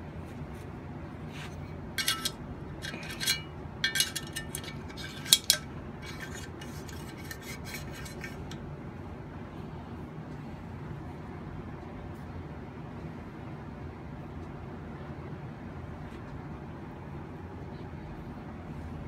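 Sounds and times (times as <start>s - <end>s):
steady low hum: 0.0s - 19.0s
metal clicks and clinks: 2.0s - 8.6s.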